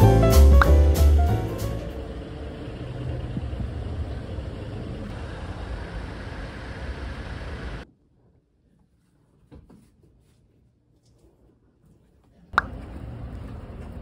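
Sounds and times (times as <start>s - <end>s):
low outdoor rumble: 0.0s - 8.0s, 12.5s - 14.0s.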